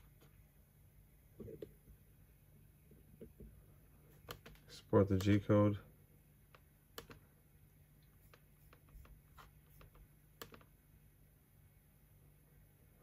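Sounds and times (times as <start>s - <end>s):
faint low hum: 0.0s - 13.0s
computer mouse clicks: 4.2s - 5.4s, 6.5s - 7.2s, 8.0s - 10.7s.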